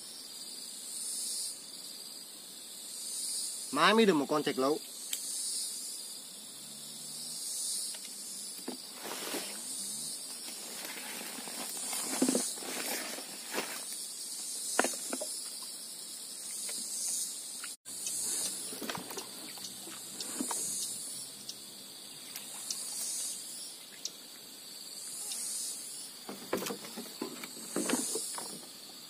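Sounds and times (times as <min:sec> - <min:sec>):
insects chirring: 0:00.0 - 0:29.0
open hiss: 0:07.5 - 0:21.5, 0:22.3 - 0:29.0
short scuffing noises: 0:10.4 - 0:13.9.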